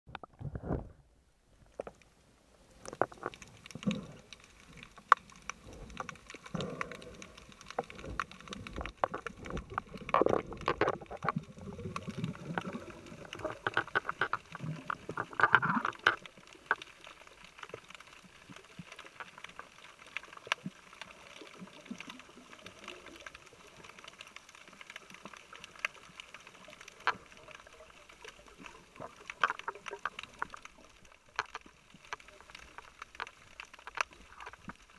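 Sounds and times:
muffled water gurgling and bubbling: 0:02.9 - 0:17.5.

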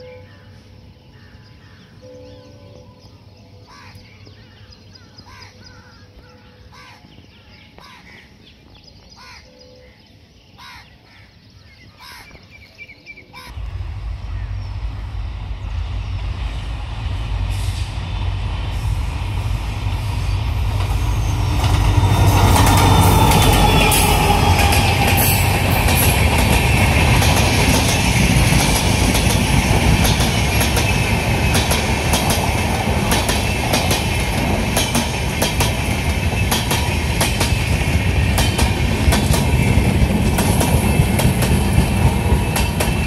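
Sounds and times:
crows cawing: 0:03.7 - 0:04.0, 0:05.3 - 0:07.1, 0:09.2 - 0:09.5, 0:10.6 - 0:11.3, 0:12.0 - 0:12.4
train wheel and rail noise: 0:13.4 - 0:43.0
diesel locomotive rumble: 0:13.5 - 0:43.0.

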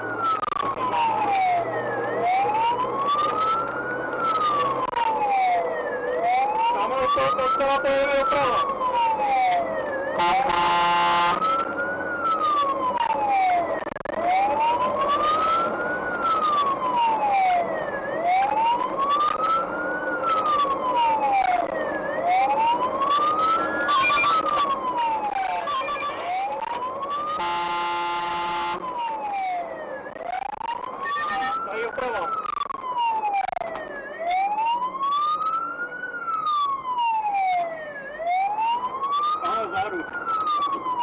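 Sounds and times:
fire engine siren wailing: 0:00.0 - 0:41.0
short horn blasts: 0:10.2 - 0:11.4, 0:27.4 - 0:28.8.

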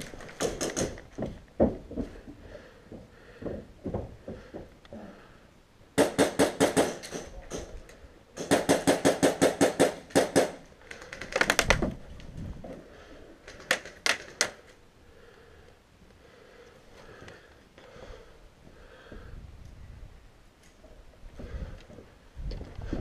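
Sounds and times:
airsoft rifle firing: 0:06.0 - 0:07.4, 0:08.4 - 0:10.7.

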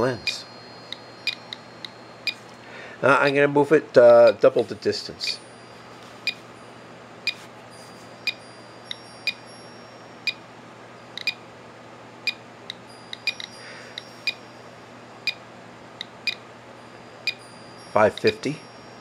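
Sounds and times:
geiger counter beeping: 0:00.0 - 0:04.4, 0:08.2 - 0:10.4, 0:11.1 - 0:11.4, 0:12.2 - 0:14.6, 0:17.1 - 0:19.0.

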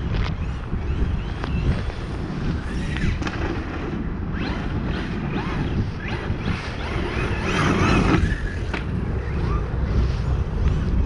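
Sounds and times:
wind rumbling on microphone: 0:00.0 - 0:11.0
electric motor whining: 0:04.3 - 0:10.2.

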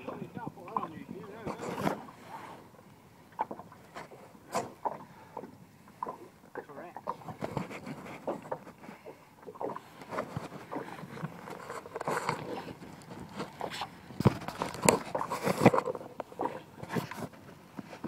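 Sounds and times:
clicks and rustling of handling: 0:00.7 - 0:02.1, 0:07.1 - 0:09.1, 0:09.7 - 0:18.0.

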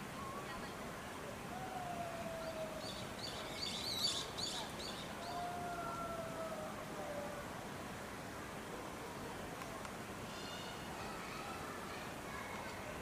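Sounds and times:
faint whistle-like tones: 0:00.1 - 0:00.7.

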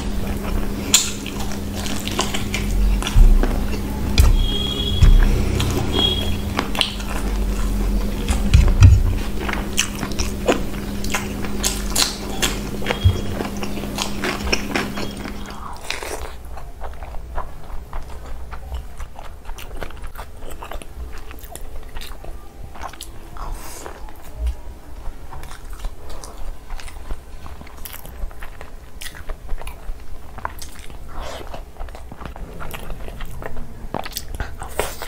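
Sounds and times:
steady low hum: 0:00.0 - 0:18.9
chewing and wet mouth clicks: 0:00.2 - 0:08.7, 0:09.4 - 0:24.3, 0:25.0 - 0:35.0.

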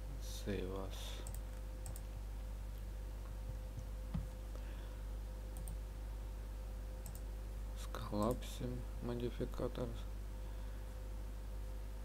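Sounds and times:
low electrical hum: 0:00.0 - 0:12.0
computer mouse clicks: 0:01.2 - 0:02.1, 0:05.6 - 0:05.8, 0:07.0 - 0:07.3.

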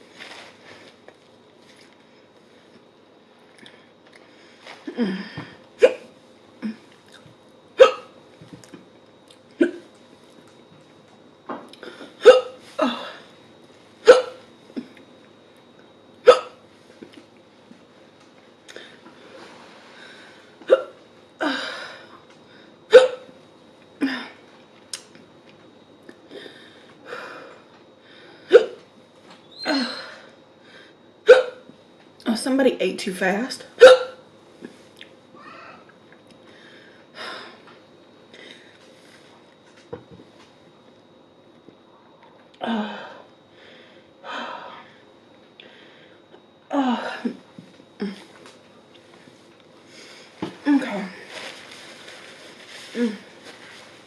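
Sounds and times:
woman hiccuping: 0:05.8 - 0:06.8, 0:07.8 - 0:08.1, 0:09.6 - 0:09.9, 0:12.2 - 0:13.2, 0:14.0 - 0:14.4, 0:16.2 - 0:16.6, 0:20.7 - 0:21.0, 0:22.9 - 0:23.3, 0:28.5 - 0:28.8, 0:31.2 - 0:31.6, 0:33.8 - 0:34.2, 0:50.6 - 0:51.2
woman coughing into a tissue: 0:07.8 - 0:08.2, 0:12.2 - 0:13.2, 0:14.0 - 0:14.4, 0:20.7 - 0:21.0, 0:22.9 - 0:23.3, 0:28.5 - 0:28.8, 0:31.3 - 0:31.6, 0:33.8 - 0:34.2.

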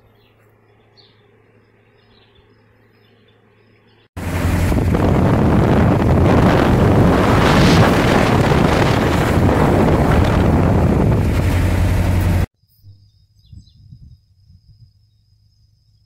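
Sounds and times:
engine and tyre hum: 0:00.0 - 0:12.5
wind rushing past car window: 0:04.2 - 0:12.5, 0:13.4 - 0:14.9.

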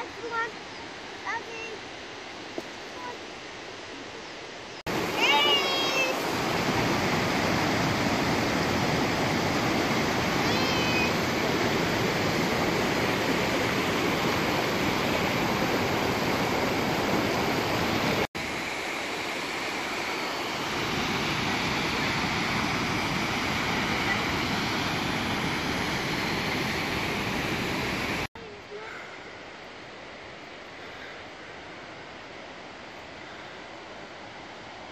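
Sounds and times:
stream rushing over stones: 0:00.0 - 0:34.9.

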